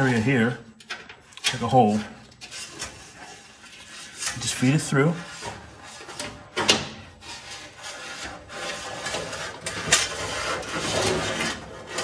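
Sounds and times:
wire scraping against sheet metal: 0.0 - 12.0.

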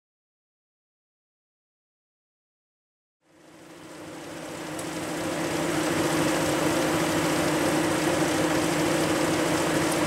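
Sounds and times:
diesel engine idling: 3.8 - 10.0.

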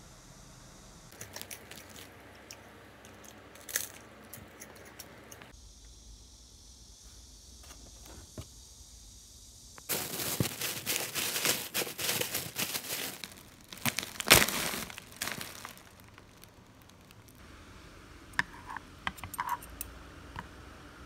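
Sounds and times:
plastic bag crinkling: 1.1 - 2.2, 9.9 - 17.4.

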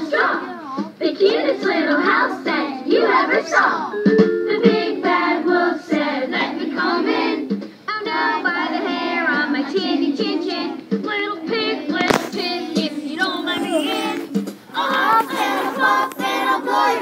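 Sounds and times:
young children singing: 0.0 - 17.0.

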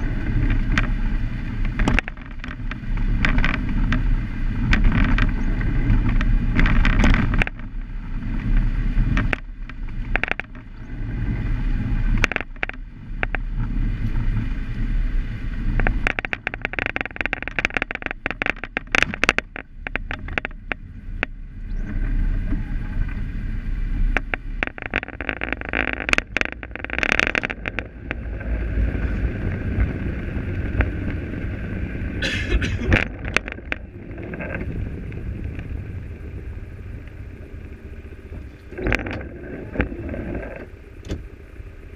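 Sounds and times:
car engine and road rumble: 0.0 - 41.9
rattles and clicks in car: 0.0 - 41.9.

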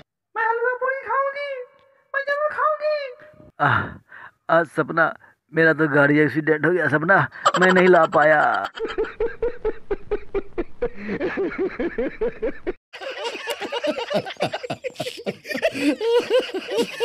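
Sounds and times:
man laughing: 7.4 - 17.0
several men laughing together: 7.4 - 17.0.

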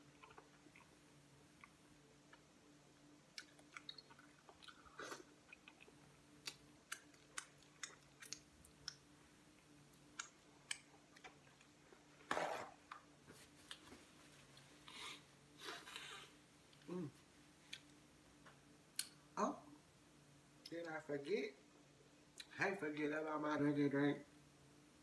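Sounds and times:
person chewing and lip-smacking: 0.0 - 1.0, 3.3 - 9.2, 10.0 - 11.8
faint steady hum: 0.0 - 25.0.

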